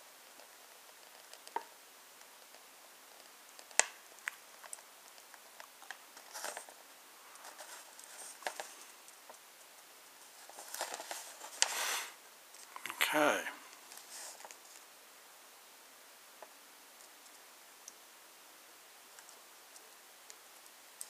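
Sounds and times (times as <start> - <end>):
paper sheet rustling: 10.2 - 12.1.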